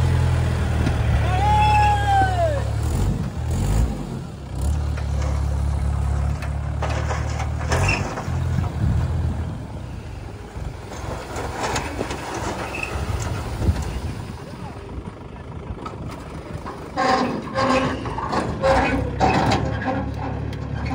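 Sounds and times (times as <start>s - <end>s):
tractor diesel engine droning: 0.0s - 20.9s
soil sliding with knocks: 4.7s - 9.3s, 10.7s - 14.2s.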